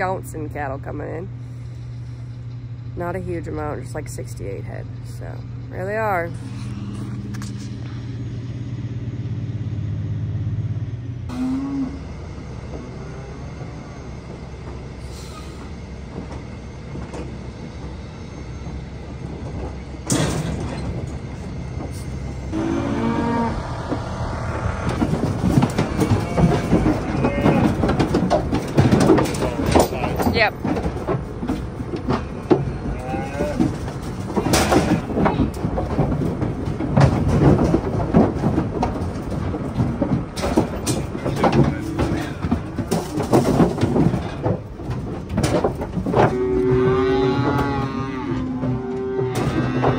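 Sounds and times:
truck low rumble: 0:00.0 - 0:49.9
hooves clattering on metal floor: 0:12.6 - 0:49.9
metal door clang and scrape: 0:20.1 - 0:21.2.

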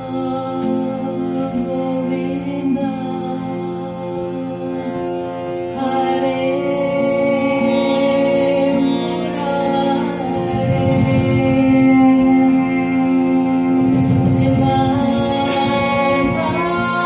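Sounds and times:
held drone: 0:00.0 - 0:17.0
sitar: 0:00.0 - 0:17.0
women singing a devotional chant: 0:05.8 - 0:17.0.

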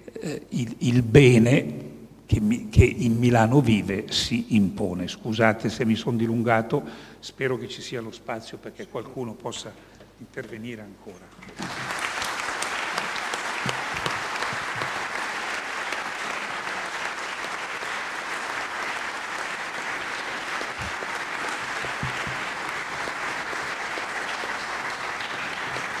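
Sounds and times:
audience applauding: 0:11.6 - 0:26.0.

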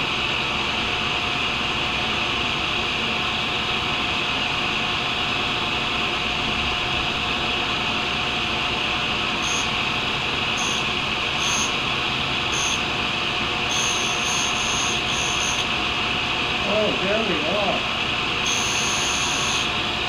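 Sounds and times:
grinder running: 0:09.1 - 0:13.0, 0:13.6 - 0:15.9, 0:16.6 - 0:20.0.

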